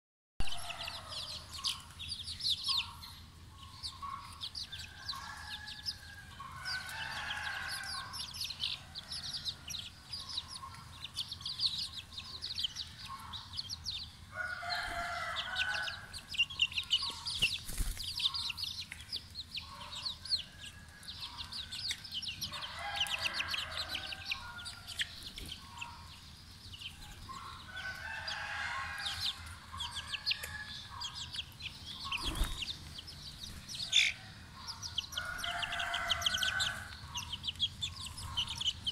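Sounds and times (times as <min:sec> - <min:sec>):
chicks peeping: 0:00.4 - 0:38.9
loud chicken calls: 0:04.9 - 0:09.7, 0:14.3 - 0:16.2, 0:27.0 - 0:31.1, 0:35.2 - 0:37.0.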